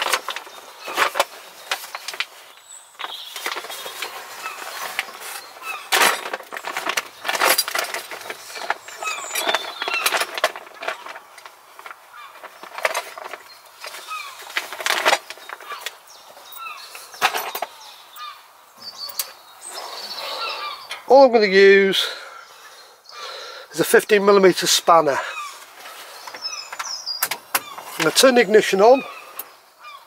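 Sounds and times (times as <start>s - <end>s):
hand tools clattering: 0.0s - 18.2s, 25.2s - 29.5s
small birds chirping: 0.0s - 30.0s.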